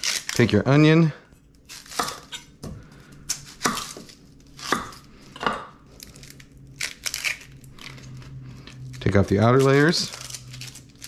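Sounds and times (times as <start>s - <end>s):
knife cutting onion on board: 1.8s - 5.7s.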